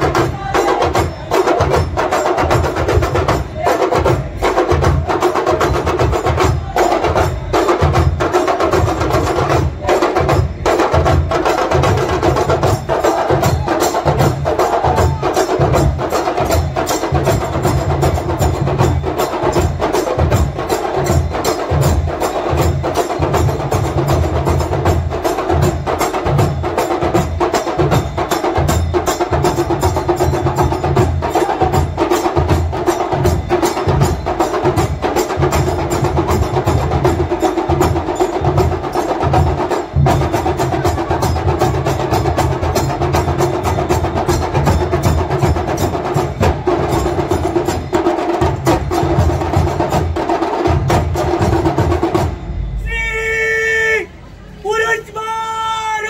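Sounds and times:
drums beaten fast: 0.0 - 56.0
metallic strikes: 50.8 - 53.2.

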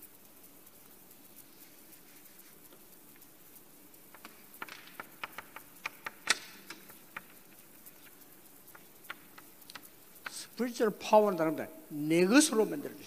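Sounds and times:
chalk tapping on blackboard: 4.0 - 10.6.

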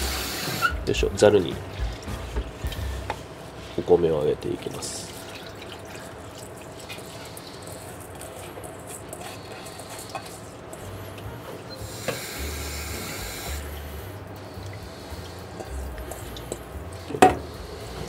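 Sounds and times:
water trickling and dripping: 0.6 - 3.7, 4.4 - 11.3, 14.2 - 17.5.

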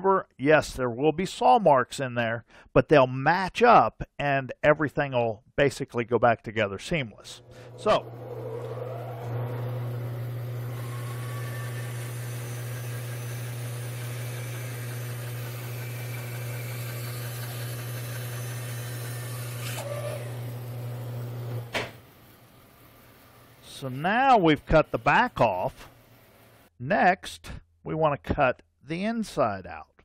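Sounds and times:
bandsaw cutting wood: 7.4 - 21.7.

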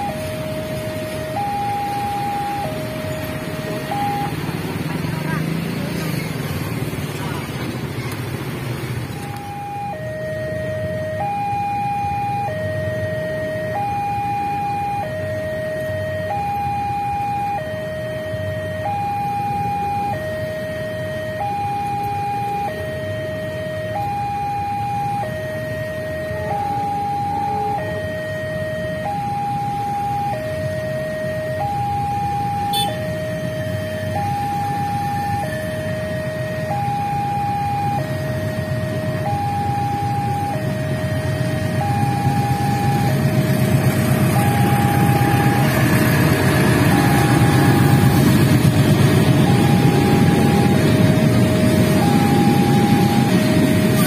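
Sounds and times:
level crossing two-tone alarm: 0.0 - 4.5, 9.2 - 54.0
idling motorcycles and cars: 0.0 - 54.0.

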